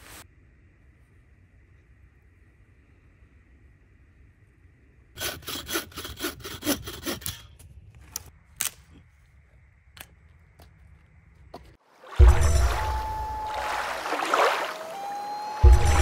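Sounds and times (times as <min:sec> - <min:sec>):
hand saw cutting wood: 0:05.2 - 0:07.6.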